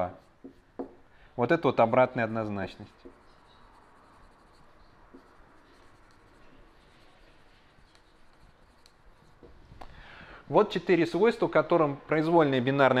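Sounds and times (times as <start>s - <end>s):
marker scratching on whiteboard: 0.0s - 1.0s, 2.1s - 9.6s.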